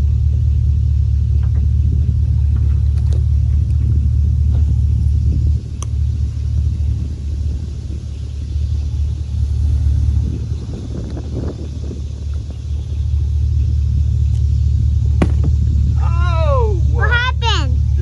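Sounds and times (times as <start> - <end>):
boat engine idling: 0.0 - 18.0.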